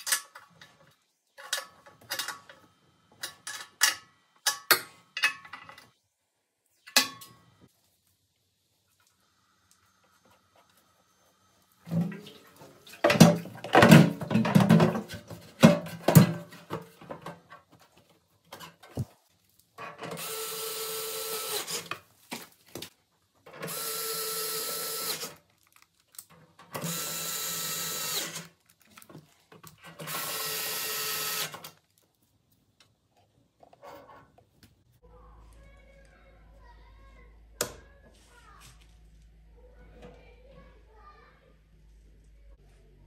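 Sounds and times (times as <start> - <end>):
electric screwdriver running: 20.2 - 21.9, 23.6 - 25.4, 26.8 - 28.5, 30.0 - 31.6.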